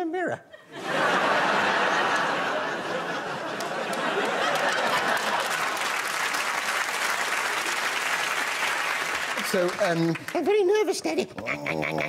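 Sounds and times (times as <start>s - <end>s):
audience applauding: 1.4s - 10.7s.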